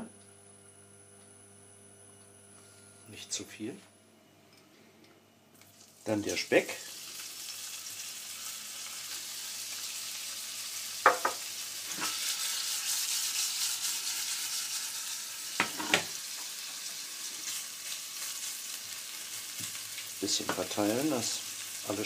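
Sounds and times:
bacon sizzling in a frying pan: 5.6 - 22.0
spatula knocking on pan: 11.0 - 11.4.

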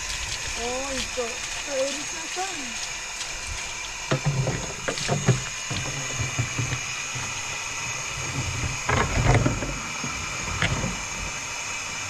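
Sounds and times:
mechanical hum: 0.0 - 12.0.

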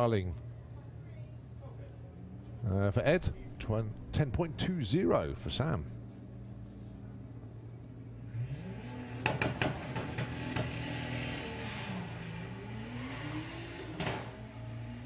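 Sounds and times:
cars accelerating hard: 8.2 - 15.0.

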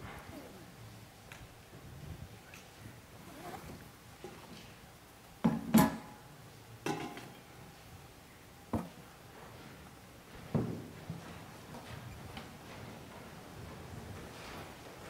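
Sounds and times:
metal ware knocking and clinking: 6.8 - 7.4.

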